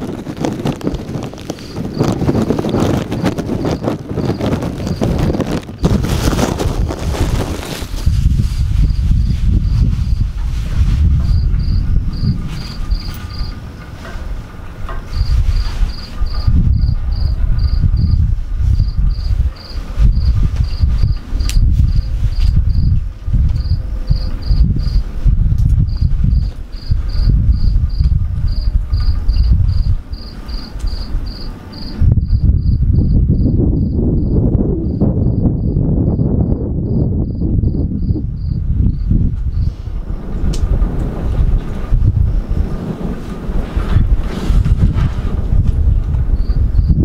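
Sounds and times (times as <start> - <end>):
cricket chirping: 1.4 - 6.2, 11.2 - 13.8, 15.1 - 25.1, 25.7 - 40.2, 46.3 - 47.0
loud low rumble: 4.3 - 30.1, 32.0 - 47.0.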